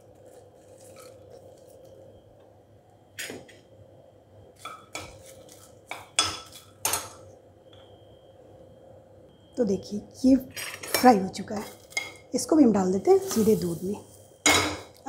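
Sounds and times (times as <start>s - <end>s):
spoon scraping frying pan: 13.1s - 13.9s.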